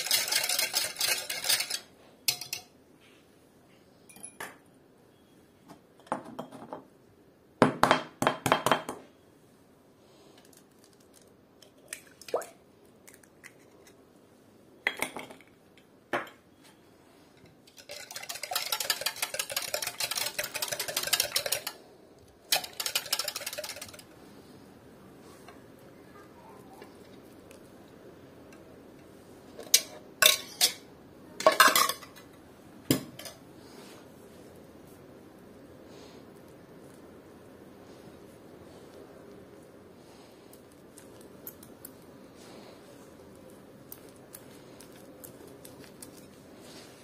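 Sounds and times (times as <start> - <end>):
utensil clinking on bowl: 0.0 - 2.7
utensil stirring in bowl: 0.0 - 2.7, 17.4 - 24.4.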